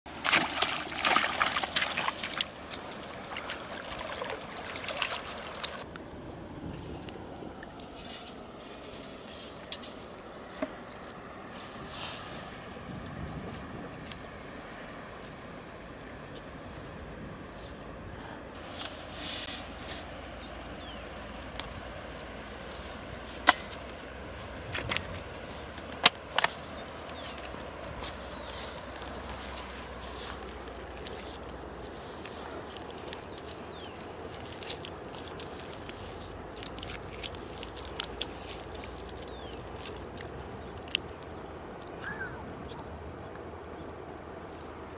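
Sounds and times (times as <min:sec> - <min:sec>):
fish splashing in water: 0:00.1 - 0:05.8, 0:28.5 - 0:42.1
outdoor background noise: 0:00.1 - 0:44.9.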